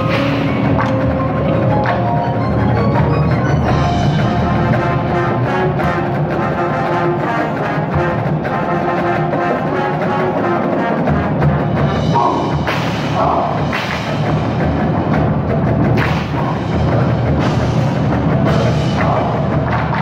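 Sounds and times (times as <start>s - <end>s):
marching percussion: 0.0s - 20.0s
brass holding chords: 2.5s - 12.7s.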